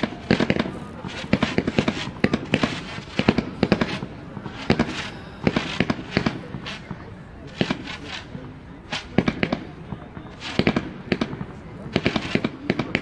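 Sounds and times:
fireworks bangs and crackling: 0.0s - 13.0s.

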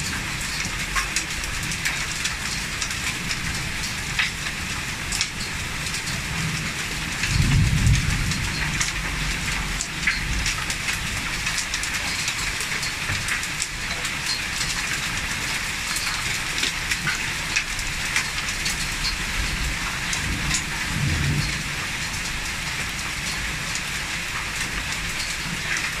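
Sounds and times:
heavy rain pouring: 0.0s - 26.0s
raindrops ticking close by: 0.0s - 26.0s.

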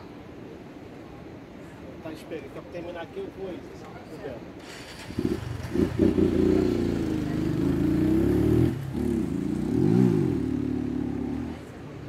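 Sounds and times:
engine revving: 4.6s - 11.6s.

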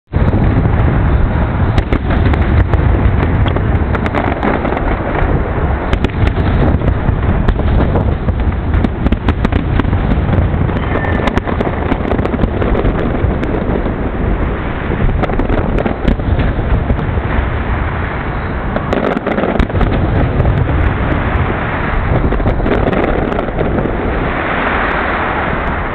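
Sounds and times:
continuous low rumble: 0.1s - 25.9s
firework crackling: 0.1s - 25.9s
firework shells bursting: 0.3s - 25.9s.

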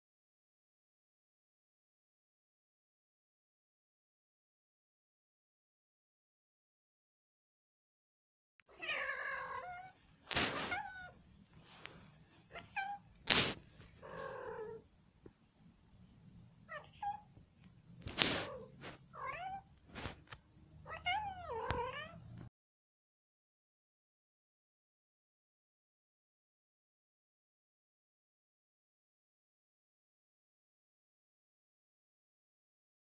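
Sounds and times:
cat meowing: 8.7s - 11.2s, 12.5s - 13.1s, 14.0s - 14.8s, 16.7s - 17.3s, 18.4s - 19.7s, 20.8s - 22.5s.

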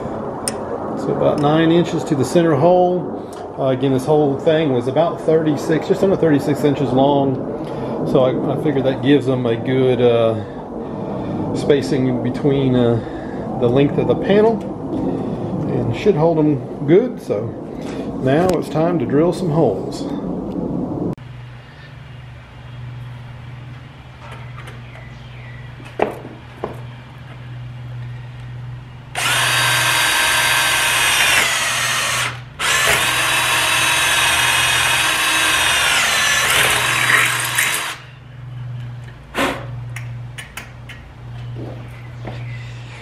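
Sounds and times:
cordless drill whining: 29.1s - 38.1s.

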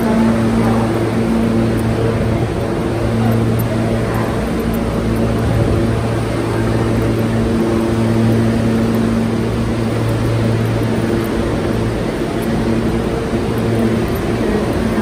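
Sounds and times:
low electric hum: 0.0s - 15.0s
subway train rumbling: 0.0s - 15.0s.

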